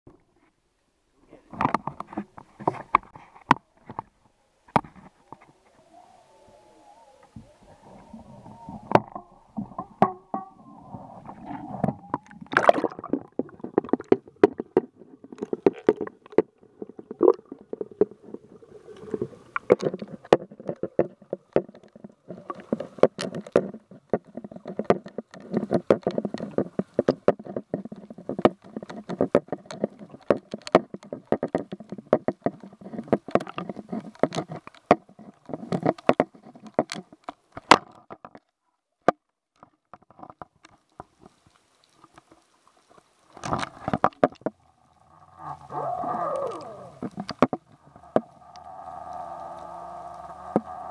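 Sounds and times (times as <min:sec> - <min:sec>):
muffled underwater rumble: 0:05.2 - 0:13.7, 0:44.6 - 0:50.9
sharp clicks and knocks: 0:19.6 - 0:41.1.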